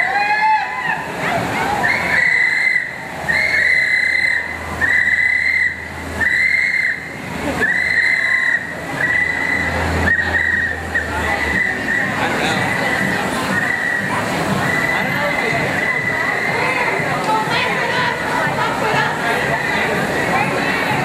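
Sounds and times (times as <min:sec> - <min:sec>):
whistle blasts: 0:01.8 - 0:16.8.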